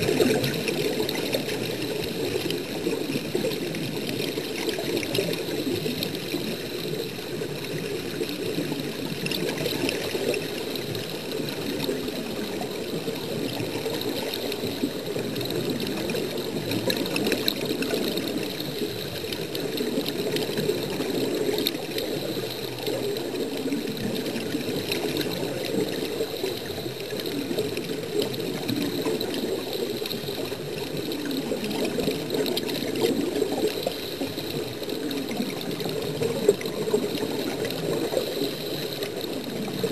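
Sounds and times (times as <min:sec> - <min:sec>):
underwater air bubbling: 0:00.0 - 0:39.9.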